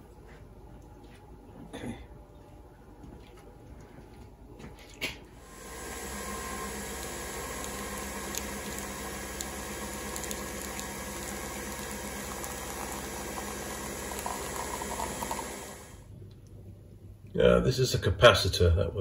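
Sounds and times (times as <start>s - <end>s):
coffee machine humming: 5.3s - 16.1s
coffee pouring into a mug: 5.5s - 16.0s.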